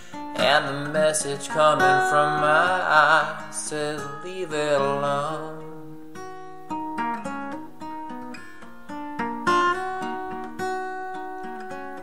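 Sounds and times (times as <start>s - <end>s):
acoustic guitar picking: 0.0s - 12.0s.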